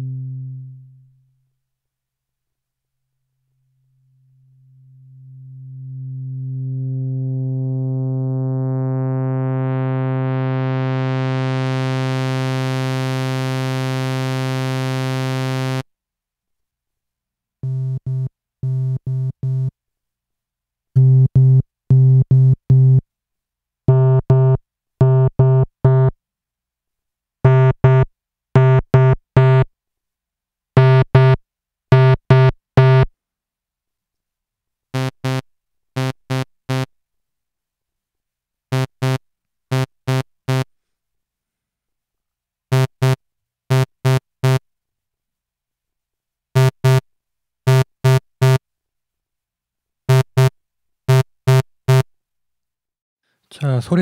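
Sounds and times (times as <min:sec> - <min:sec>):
synthesizer low note filter sweep: 0:00.0 - 0:01.3, 0:03.9 - 0:15.8
synthesizer short repeated low notes: 0:00.0 - 0:01.3, 0:04.0 - 0:15.8.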